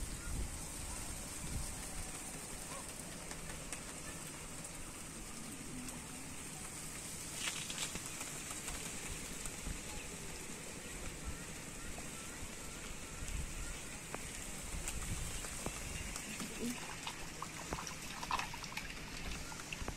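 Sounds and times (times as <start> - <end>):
wind rumble on microphone: 0.0 - 2.8, 9.0 - 16.6
thin high hiss: 0.0 - 16.8.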